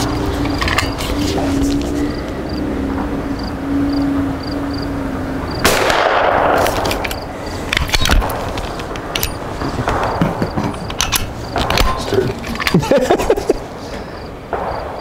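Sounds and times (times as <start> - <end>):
suppressed rifle shot: 5.6 - 7.0
sharp clicks: 6.6 - 12.9.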